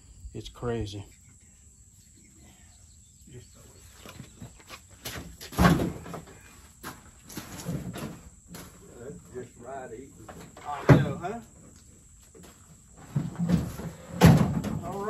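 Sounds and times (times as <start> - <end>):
heavy thump in truck bed: 5.5 - 6.4, 13.0 - 15.0.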